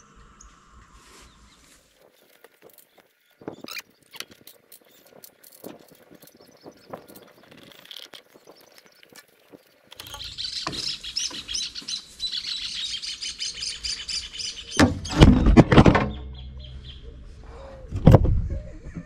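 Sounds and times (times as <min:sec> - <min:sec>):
birds chirping rapidly: 0:00.0 - 0:17.9
pipe thumping and rumbling: 0:14.8 - 0:17.2.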